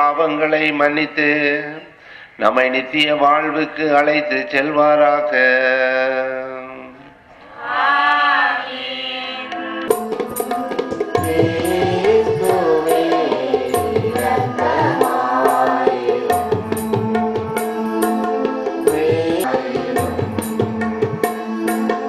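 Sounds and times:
church hymn singing: 0.0s - 9.8s, 11.0s - 22.0s
person singing: 0.0s - 22.0s
held melodic accompaniment: 9.5s - 22.0s
tabla rhythm: 9.5s - 22.0s.

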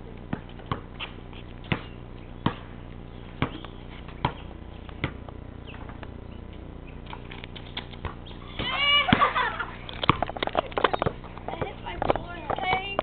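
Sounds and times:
basketball bouncing on concrete: 0.0s - 6.1s, 7.1s - 9.4s, 10.0s - 13.0s.

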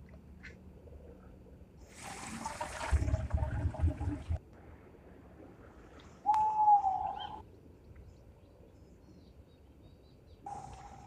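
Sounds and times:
owl long call: 6.2s - 7.4s.

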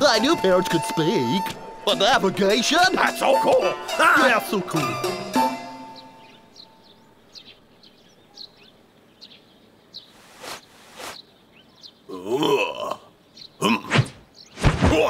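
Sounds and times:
quick swishes: 10.1s - 11.2s.

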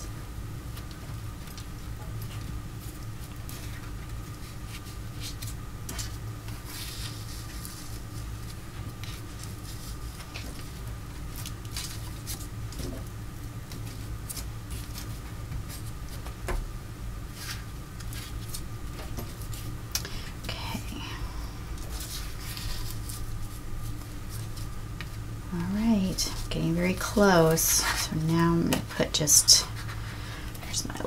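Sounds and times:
steady low hum: 0.0s - 31.0s
hands rubbing paper and fabric: 2.3s - 12.8s, 13.7s - 16.4s, 17.3s - 19.8s, 21.8s - 30.2s.

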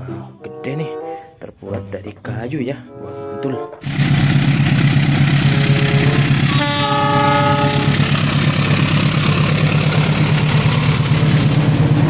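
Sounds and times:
locomotive horn: 2.9s - 4.0s, 5.4s - 8.2s
diesel locomotive engine: 3.8s - 12.0s.

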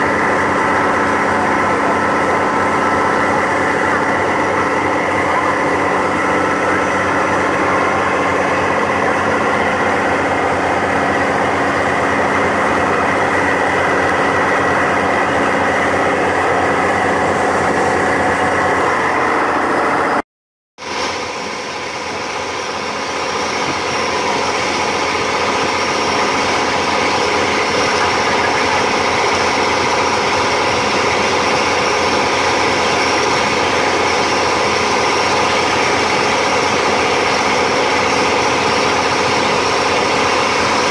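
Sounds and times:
motorboat engine running: 0.0s - 20.2s, 20.8s - 40.9s
wake churning along hull: 0.0s - 20.2s, 20.8s - 40.9s.

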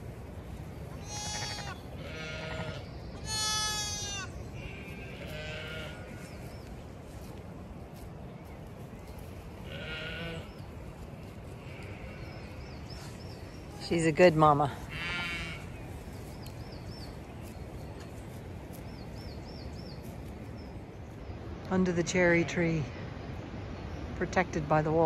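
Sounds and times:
lambs bleating: 1.0s - 6.3s, 9.6s - 10.6s, 11.5s - 12.5s, 14.8s - 15.8s.

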